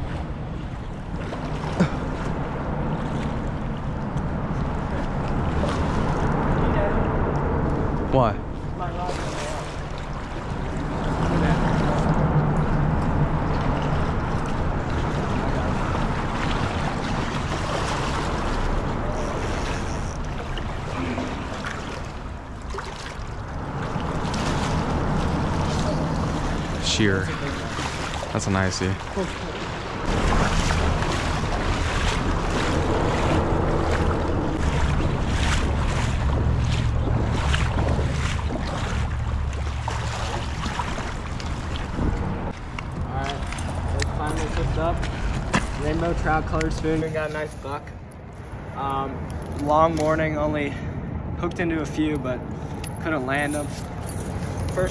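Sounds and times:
water splashing around legs: 0:00.0 - 0:06.7, 0:07.4 - 0:47.4
steady low rumble: 0:00.0 - 0:54.9
fish thrashing in water: 0:09.1 - 0:45.9.

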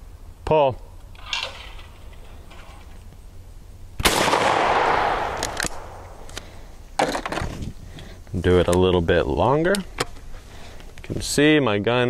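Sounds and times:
shotgun shot with echo: 0:04.0 - 0:06.1
sharp clicks: 0:05.2 - 0:06.5.

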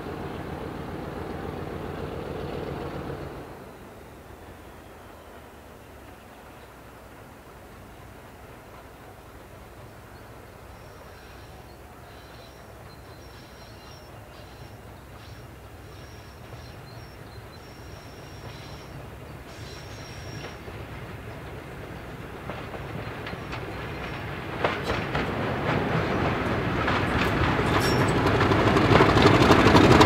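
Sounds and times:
diesel locomotive engine rumbling: 0:00.0 - 0:30.0
wheels clicking over rail joints: 0:17.8 - 0:30.0.

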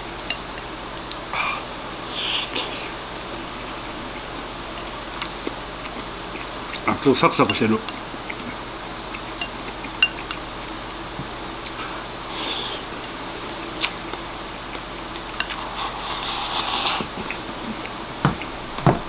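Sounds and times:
slurping and shoveling food: 0:11.7 - 0:12.9, 0:15.4 - 0:17.4.

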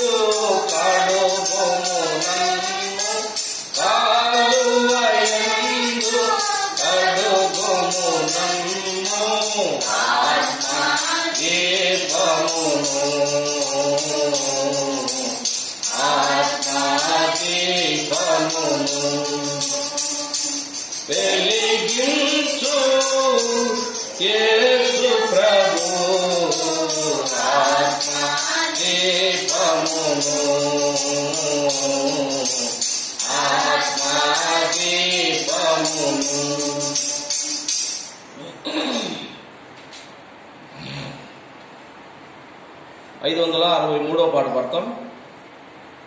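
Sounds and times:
group singing a hymn: 0:00.0 - 0:38.1
tambourine jingling: 0:00.0 - 0:38.8.

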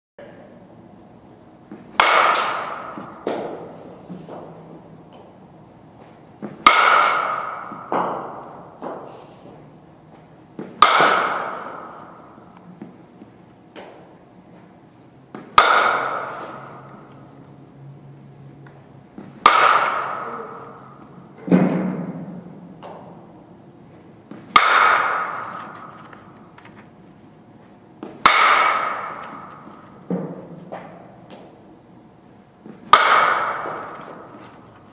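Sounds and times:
bat hitting ball with ringing ping: 0:01.9 - 0:03.6, 0:06.6 - 0:09.0, 0:10.7 - 0:12.1, 0:15.5 - 0:17.1, 0:19.4 - 0:21.1, 0:24.4 - 0:26.4, 0:28.1 - 0:31.0, 0:32.8 - 0:34.3.

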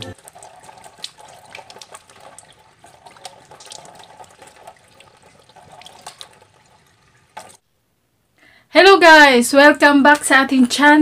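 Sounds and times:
water splashing at sink: 0:00.0 - 0:07.6
faint running water: 0:00.0 - 0:07.8.

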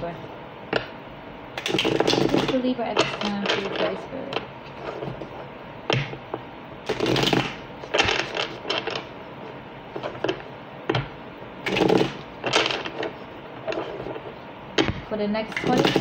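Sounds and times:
cards being shuffled: 0:06.9 - 0:09.1.

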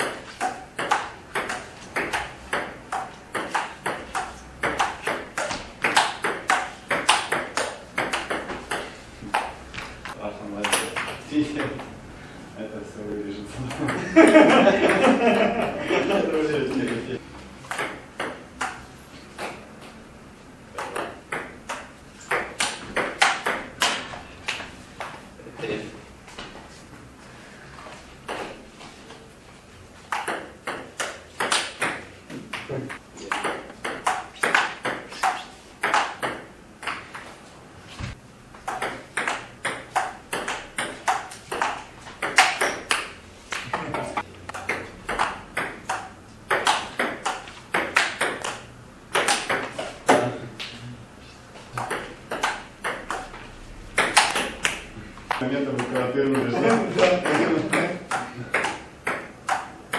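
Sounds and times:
table tennis ball clicking: 0:00.0 - 0:09.6, 0:17.7 - 0:18.8, 0:30.1 - 0:32.7, 0:33.3 - 0:37.2, 0:38.7 - 0:43.1, 0:44.5 - 0:49.8, 0:51.8 - 0:56.5, 0:57.2 - 0:59.9.

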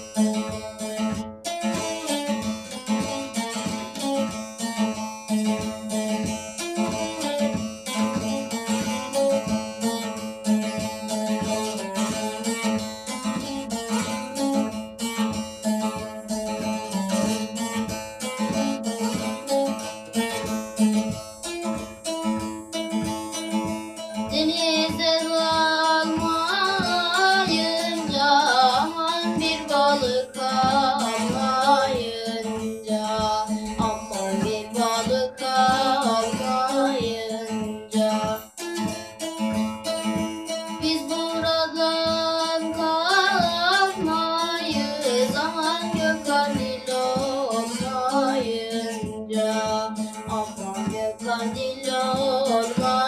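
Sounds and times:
long-necked lute folk melody: 0:00.0 - 0:53.0
person singing: 0:24.2 - 0:38.8, 0:40.6 - 0:53.0.

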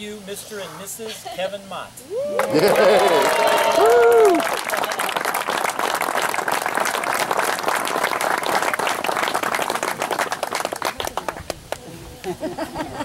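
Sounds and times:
crowd applauding: 0:02.2 - 0:11.9.

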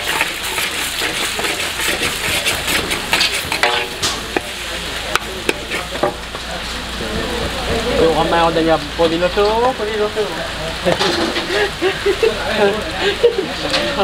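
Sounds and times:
spatula scraping and knocking wok: 0:00.0 - 0:09.6, 0:10.9 - 0:11.7
noodles sizzling in a wok: 0:00.0 - 0:14.0.

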